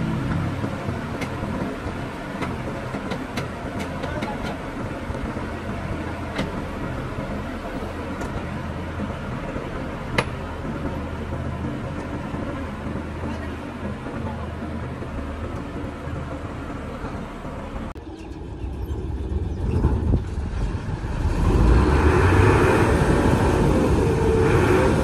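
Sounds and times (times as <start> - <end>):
combine harvester engine droning: 0.0 - 25.0.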